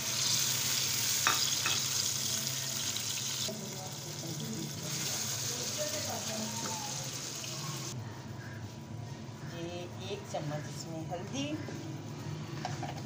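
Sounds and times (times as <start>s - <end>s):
vegetables sizzling in hot oil: 0.0s - 8.0s.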